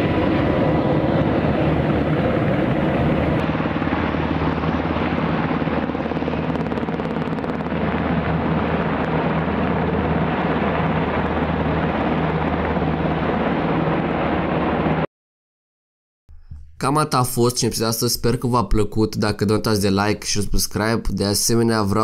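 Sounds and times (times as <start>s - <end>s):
helicopter rotor and turbine roar: 0.0s - 15.1s.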